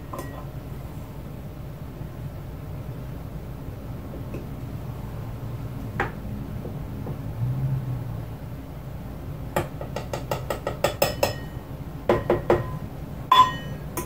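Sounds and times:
low steady hum: 0.0 - 10.3, 10.9 - 14.0
spoon clinking on metal cup: 0.1 - 0.5, 10.9 - 11.6, 12.6 - 14.0.

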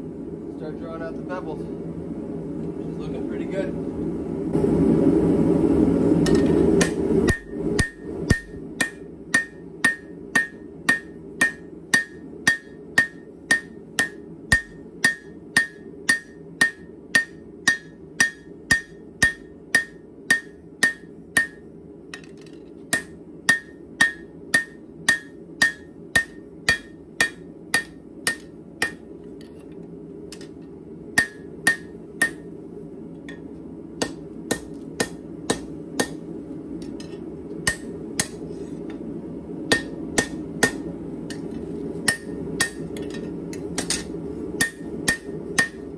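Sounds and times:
hammer striking hot steel on anvil: 6.2 - 29.2, 30.3 - 32.5, 33.3 - 38.5, 39.7 - 45.9.

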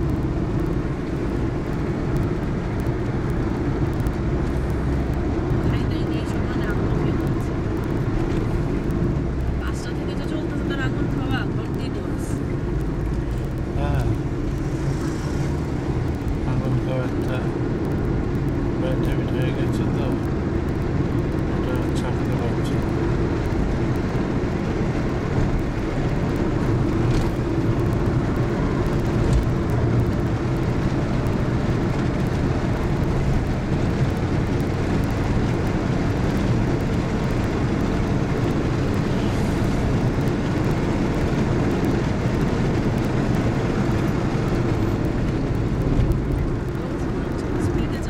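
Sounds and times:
car engine and tyre rumble: 0.0 - 48.0.

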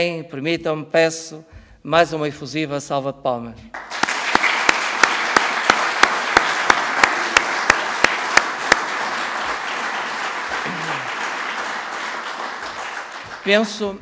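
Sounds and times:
sharp close hand claps: 3.7 - 13.7
audience applauding: 3.7 - 14.0.

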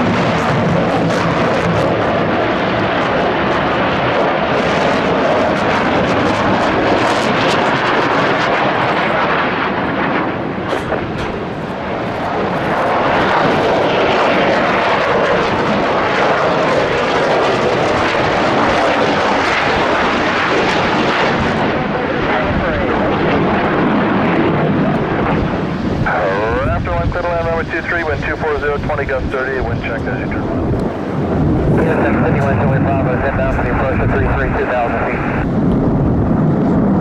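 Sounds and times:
jet engine noise: 0.0 - 37.0.

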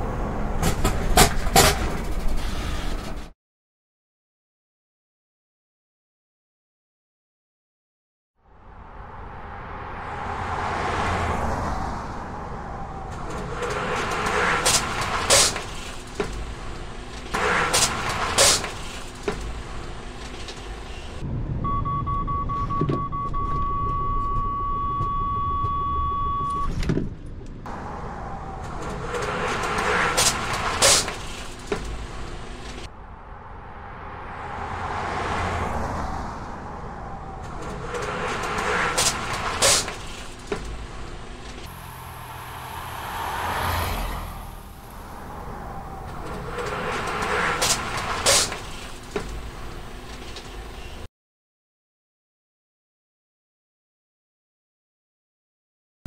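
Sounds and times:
vehicles driving past: 0.0 - 2.5, 8.4 - 21.7, 27.3 - 51.1
steady high warning beep: 21.6 - 26.7.

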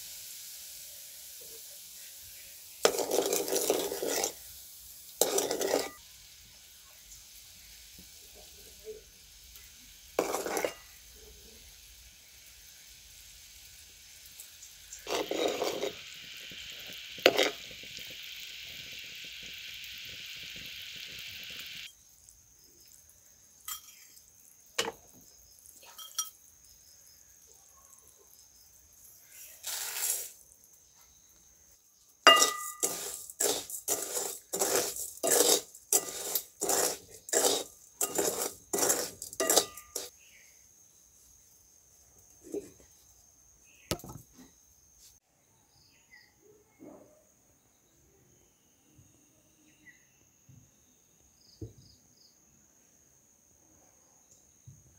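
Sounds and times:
sugar syrup sizzling: 0.0 - 41.0
spoon scraping iron pot: 2.8 - 4.4, 5.2 - 6.0, 10.2 - 11.0, 14.9 - 18.1, 23.7 - 24.2, 24.8 - 25.1, 25.9 - 26.4, 32.3 - 40.1.

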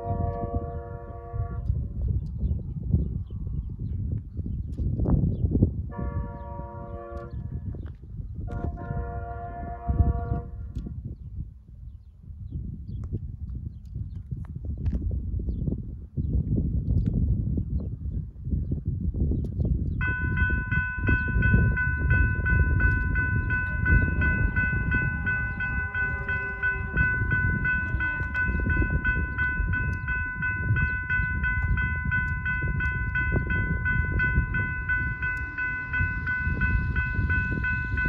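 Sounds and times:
steady low rumble: 19.4 - 38.0
railroad crossing bell dinging: 20.0 - 38.0.

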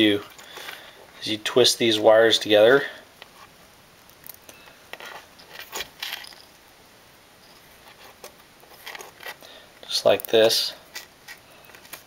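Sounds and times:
wires clicking and rustling: 2.4 - 6.7, 7.4 - 12.0.

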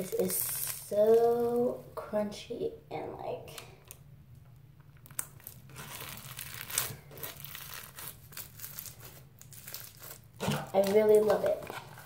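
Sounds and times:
crunchy slime crackling: 0.0 - 2.0, 4.9 - 12.0.

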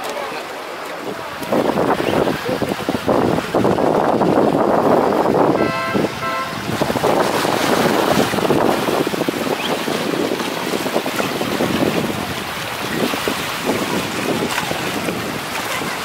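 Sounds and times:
small waves splashing on rocks: 0.0 - 16.0
wind buffeting microphone: 1.0 - 16.0
short steady tone: 5.6 - 6.7.

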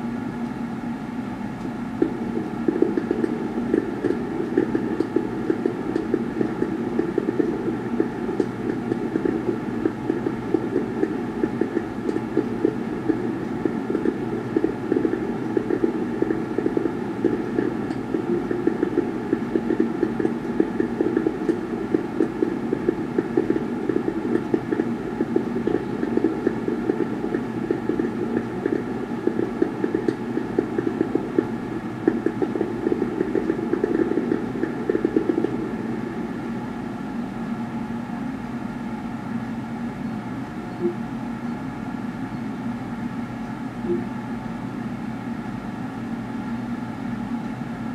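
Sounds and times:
muffled fireworks on television: 2.0 - 36.9.

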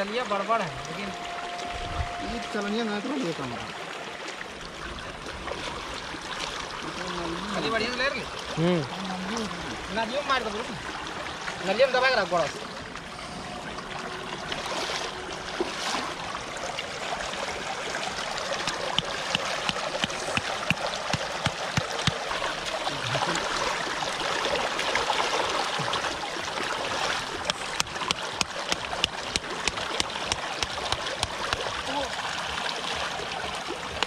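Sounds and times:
water trickling over plastic: 0.0 - 34.0
stakes hammered into wet ground: 18.7 - 22.2, 27.8 - 31.7.

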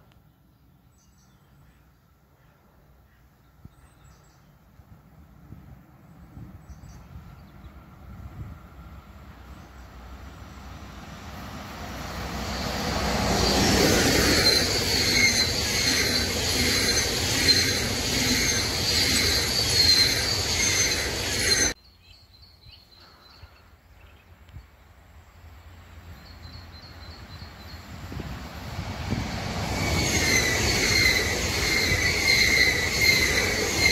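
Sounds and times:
distant train approaching: 4.1 - 21.8, 24.9 - 33.9
train passing at speed: 4.2 - 21.8, 24.9 - 33.9.

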